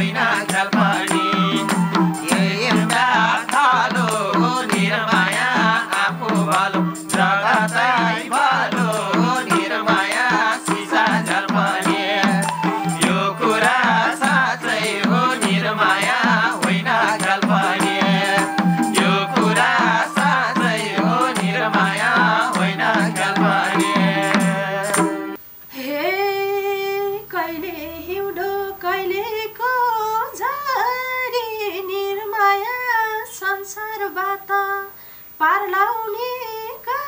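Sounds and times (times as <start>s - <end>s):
hand drums: 0.0s - 25.4s
harmonium: 0.0s - 25.4s
women singing unaccompanied: 0.0s - 37.0s
bamboo flute melody: 0.9s - 3.5s, 11.8s - 14.5s, 17.5s - 25.4s.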